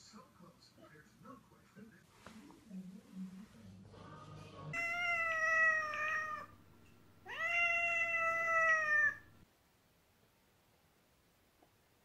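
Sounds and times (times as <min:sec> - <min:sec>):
cat meowing: 0:04.8 - 0:09.4.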